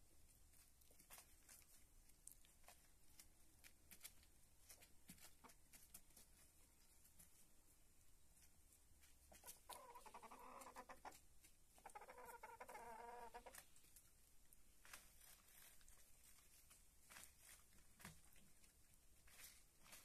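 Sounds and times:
hens pecking taps: 9.0 - 13.8
hens trilling calls: 9.4 - 11.2, 11.8 - 13.6.

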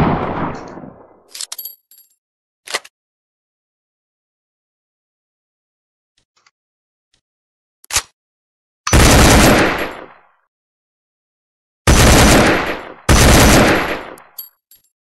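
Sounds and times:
automatic gunfire bursts: 8.9 - 10.1, 11.9 - 14.2.

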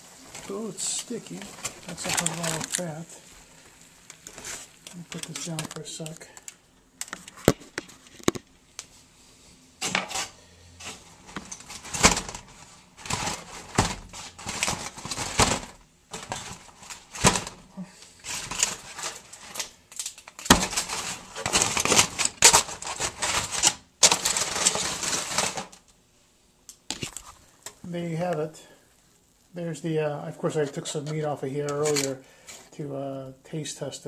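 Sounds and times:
handling rustling and clicking: 30.6 - 32.2.

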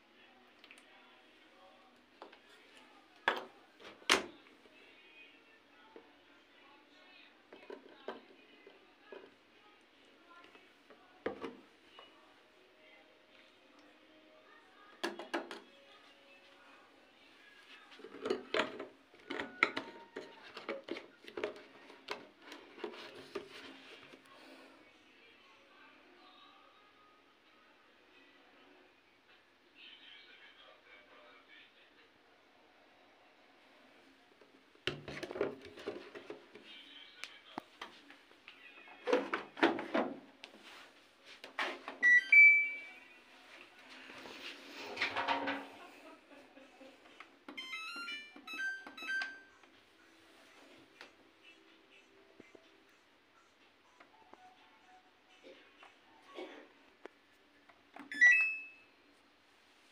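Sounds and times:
washing machine electronic beeps: 42.0 - 43.1, 47.6 - 49.7, 58.0 - 59.0.

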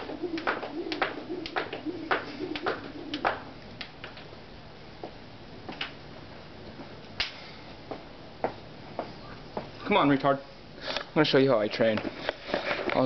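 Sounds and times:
skipping rope slapping on bricks: 0.0 - 4.2
footsteps and taps: 0.0 - 4.3, 7.9 - 9.7.

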